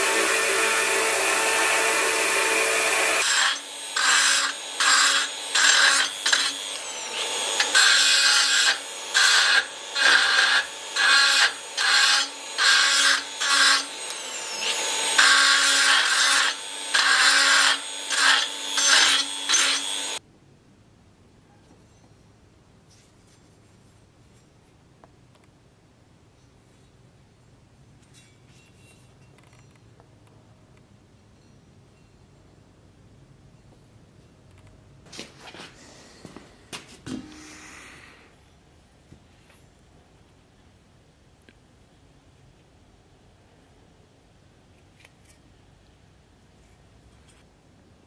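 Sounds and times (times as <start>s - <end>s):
belt grinder grinding steel: 0.0s - 20.2s
rotary tool cutting steel: 0.0s - 20.2s.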